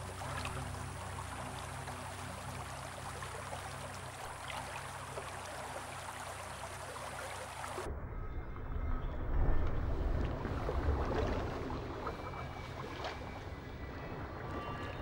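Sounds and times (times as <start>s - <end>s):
stream trickling over rocks: 0.0s - 7.9s.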